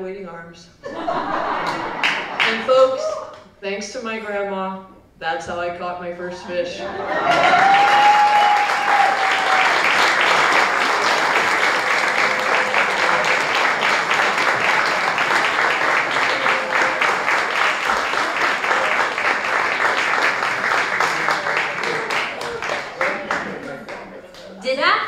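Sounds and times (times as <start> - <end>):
audience applauding: 1.5 - 2.6, 7.1 - 24.6.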